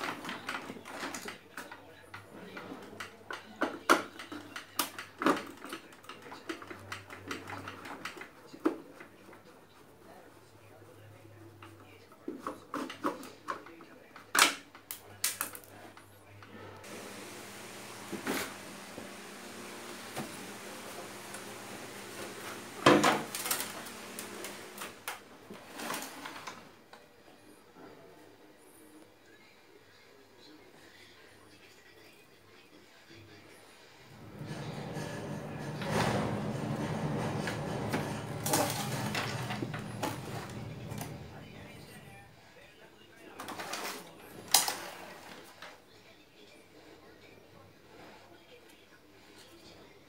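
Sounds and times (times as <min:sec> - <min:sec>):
hard plastic clattering and knocking: 0:16.9 - 0:26.6, 0:34.2 - 0:42.0.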